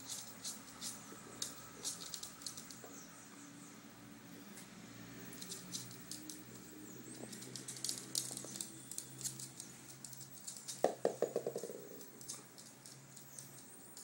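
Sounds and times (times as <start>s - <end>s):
dog claws clicking on hard floor: 0.0s - 3.0s, 5.3s - 14.0s
small ball bouncing: 10.2s - 14.0s.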